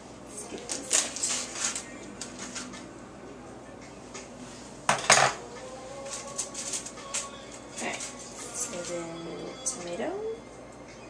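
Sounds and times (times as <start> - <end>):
dishes clattering: 4.9 - 5.4.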